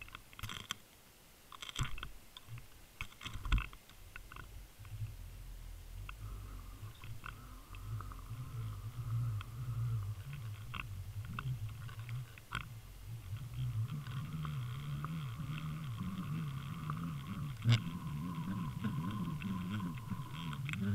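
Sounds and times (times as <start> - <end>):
muffled underwater rumble: 4.2 - 20.9.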